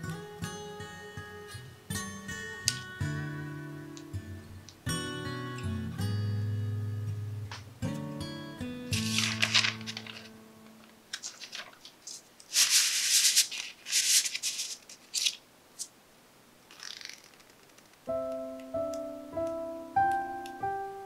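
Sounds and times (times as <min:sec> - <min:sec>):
parchment paper rustling: 0:08.9 - 0:10.4, 0:11.1 - 0:15.9.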